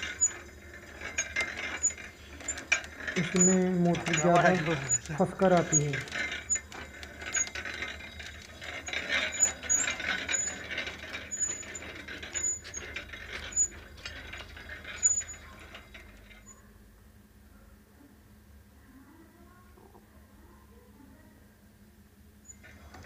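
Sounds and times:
short high squeaks: 0.0 - 16.6
winch clicking and clanking: 0.0 - 16.6.

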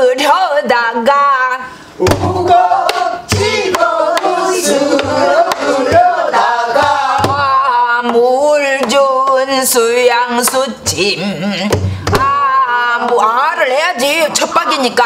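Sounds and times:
voices singing folk song: 2.0 - 13.4.

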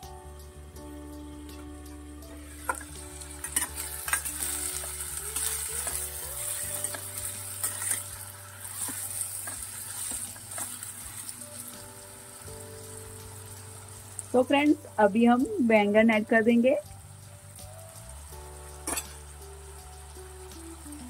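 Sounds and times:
potatoes sizzling in hot oil: 0.0 - 21.0
steel spoon scraping a pan: 2.6 - 11.3, 18.9 - 19.2.

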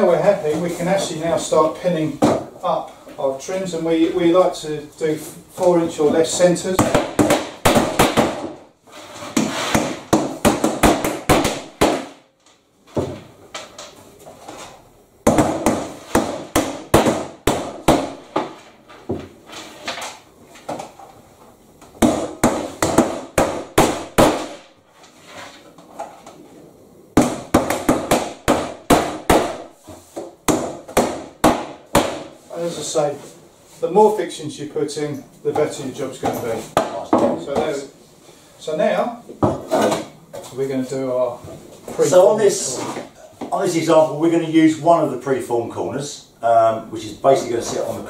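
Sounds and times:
hammers driving nails: 6.8 - 8.6, 9.4 - 12.2, 15.2 - 18.6, 22.0 - 24.7, 27.2 - 29.7, 30.5 - 32.3.

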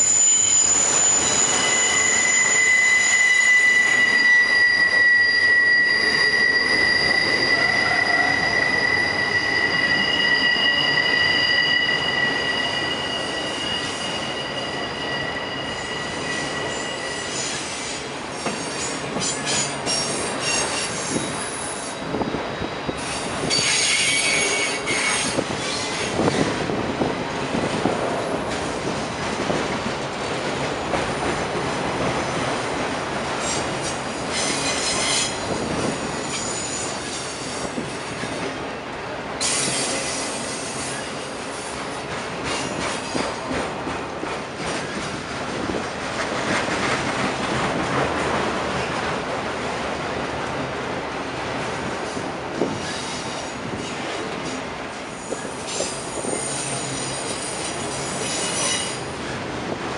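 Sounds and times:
wheels screeching: 0.0 - 18.6
high wheel squeal: 0.0 - 26.5, 34.3 - 37.8, 55.2 - 59.1
train wheels rumbling on rail: 0.0 - 59.9.

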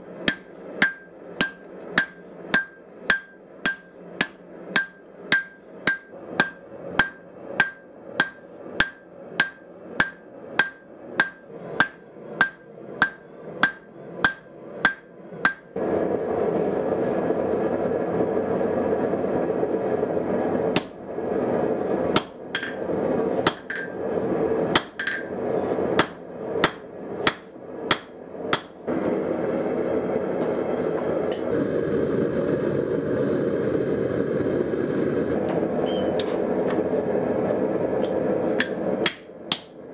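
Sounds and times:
gas forge roaring: 0.0 - 39.9
hammer striking anvil: 0.2 - 15.7, 22.2 - 22.8, 23.4 - 24.0, 24.7 - 25.3, 26.0 - 28.8, 38.6 - 39.8.

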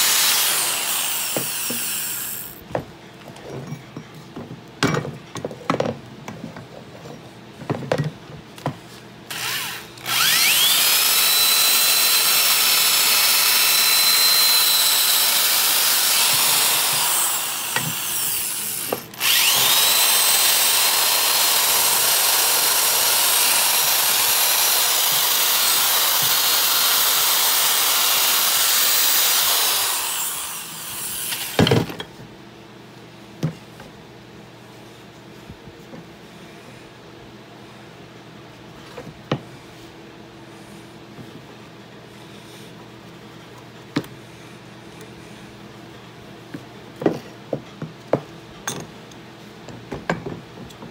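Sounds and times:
power tool whining on steel: 0.0 - 2.6, 9.3 - 31.8.

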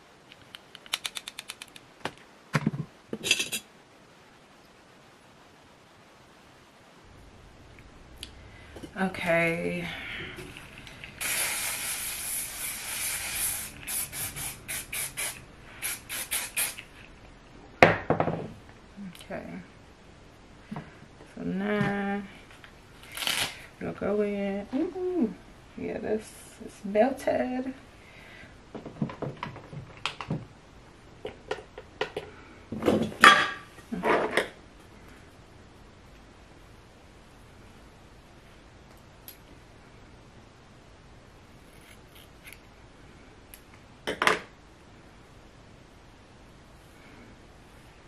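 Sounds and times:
aerosol spray hiss: 11.0 - 16.9.

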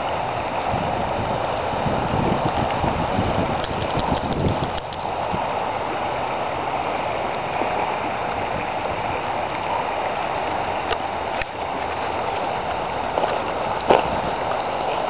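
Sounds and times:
flooded creek water rushing: 0.0 - 15.0
faint clicks: 3.6 - 5.1.

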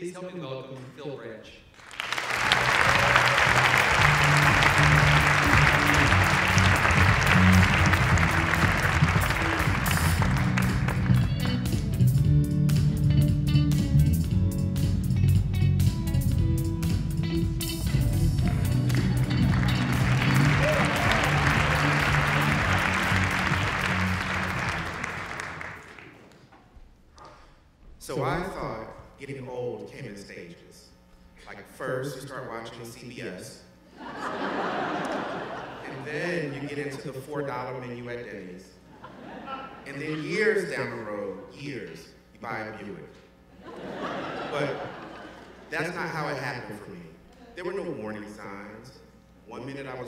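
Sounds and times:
audience applause and cheering: 1.8 - 12.1, 18.0 - 26.4
music with low guitar notes: 3.5 - 25.1.

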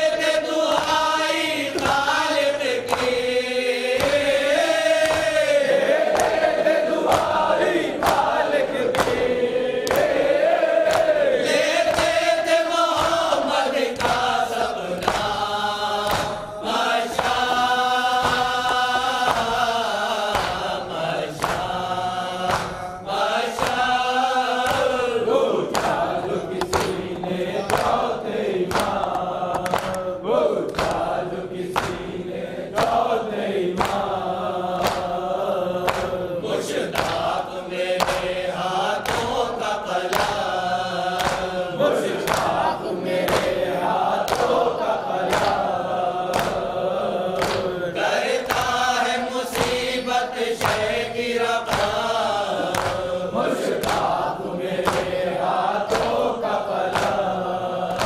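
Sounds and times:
men chanting a lament: 0.0 - 58.0
lead voice on a microphone: 11.0 - 58.0
hands striking chests: 26.6 - 28.0.

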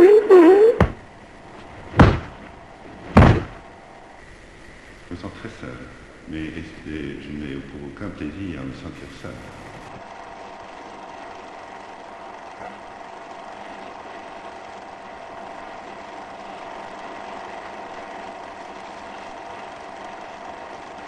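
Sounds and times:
faint held tones: 0.0 - 1.0
steady drone of noise: 0.0 - 21.0.

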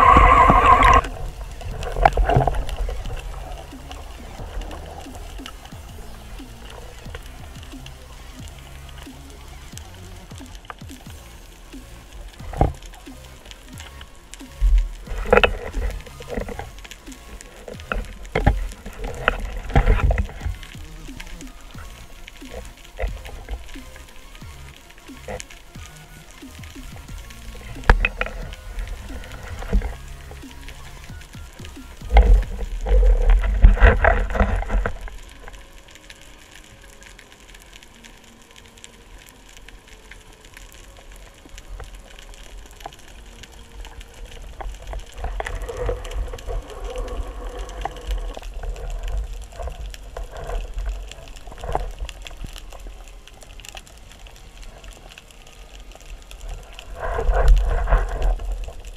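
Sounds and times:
muffled underwater thumping: 0.0 - 9.2, 9.8 - 24.6, 26.6 - 35.4
underwater hiss: 0.0 - 58.9.

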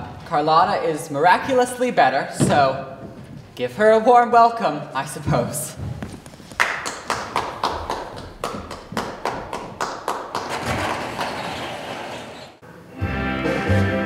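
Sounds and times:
audience applause: 6.6 - 12.2.

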